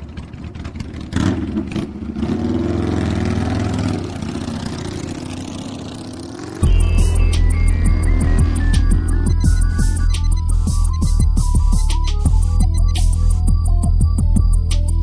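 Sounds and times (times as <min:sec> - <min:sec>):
motorcycle engine revving: 0:00.0 - 0:10.7
music: 0:06.6 - 0:15.0.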